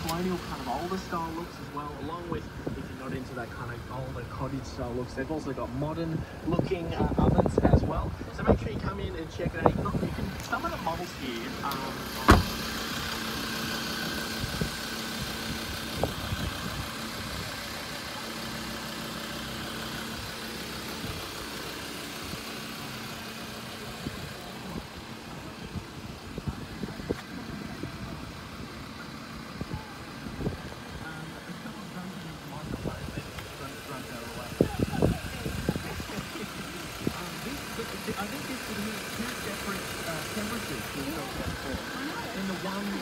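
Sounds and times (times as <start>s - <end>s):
engine idling: 0.0s - 43.0s
car door shutting: 11.7s - 12.8s.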